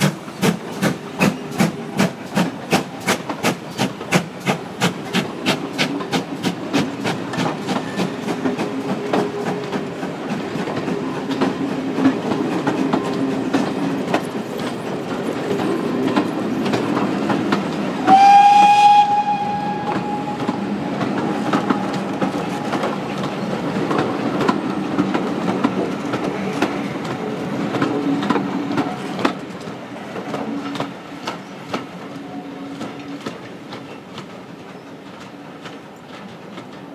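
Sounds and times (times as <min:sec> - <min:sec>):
train rumble: 0:00.0 - 0:36.9
train wheels clicking on rails: 0:00.0 - 0:36.9
steam whistle blast: 0:18.0 - 0:20.8.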